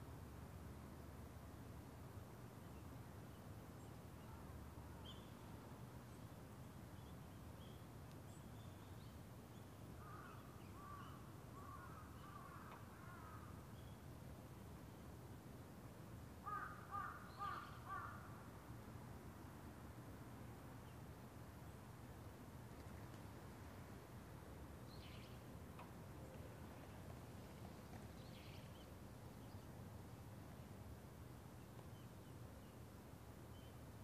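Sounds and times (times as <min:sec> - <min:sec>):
crows cawing: 0:10.0 - 0:11.0, 0:11.6 - 0:13.5, 0:16.4 - 0:18.3
small birds chirping: 0:24.9 - 0:29.9.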